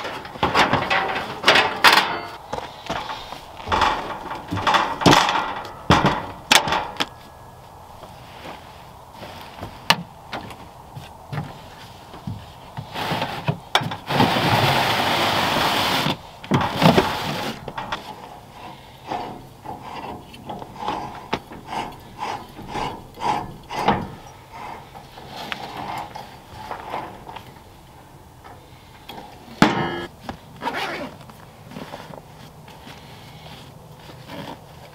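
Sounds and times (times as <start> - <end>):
gas cylinder grating turns: 0.0 - 7.2, 12.8 - 30.1.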